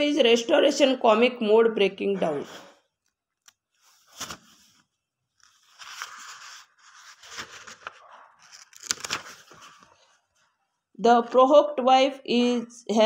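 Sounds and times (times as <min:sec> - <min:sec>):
rustling and crackling handling noise: 0:03.7 - 0:10.2.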